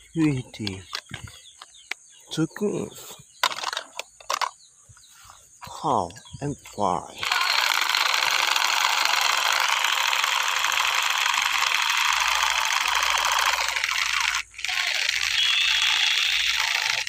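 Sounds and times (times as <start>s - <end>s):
toy gun rattling buzz: 3.4s - 4.6s, 7.2s - 17.0s.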